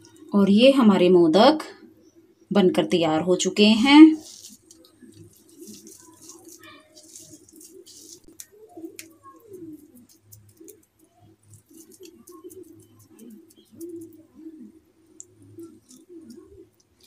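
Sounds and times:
soft squishing of sticky mixture: 0:00.0 - 0:00.4, 0:03.8 - 0:17.0
faint low wavering cooing: 0:04.1 - 0:17.0.

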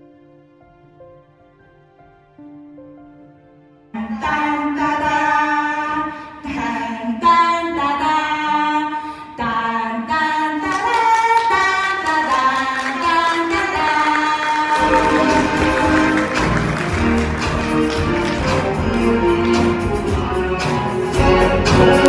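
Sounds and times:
women singing together: 0:09.4 - 0:16.2.

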